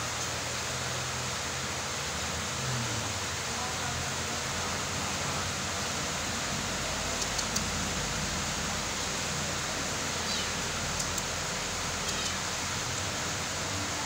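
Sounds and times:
steady hissing: 0:00.0 - 0:14.0
faint ticks: 0:07.1 - 0:07.7, 0:10.9 - 0:11.3, 0:12.0 - 0:12.4.

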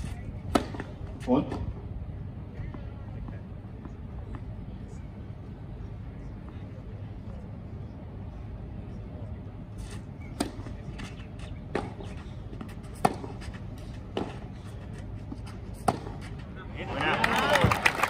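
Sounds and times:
low background hum: 0:00.0 - 0:18.0
tennis rackets hitting ball: 0:00.4 - 0:01.7, 0:10.4 - 0:16.5.

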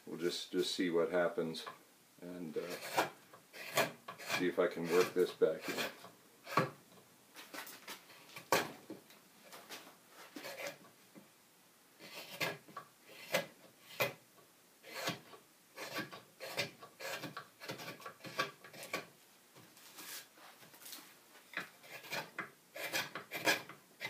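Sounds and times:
knife scraping wood: 0:02.6 - 0:06.8, 0:07.5 - 0:08.8, 0:10.2 - 0:10.9, 0:12.0 - 0:14.2, 0:14.8 - 0:19.1, 0:21.6 - 0:23.8.

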